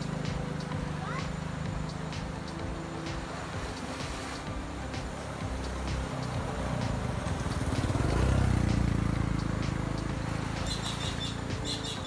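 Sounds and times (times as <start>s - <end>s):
vehicle engine drone: 0.0s - 12.0s
faint bird chirps: 9.4s - 12.0s.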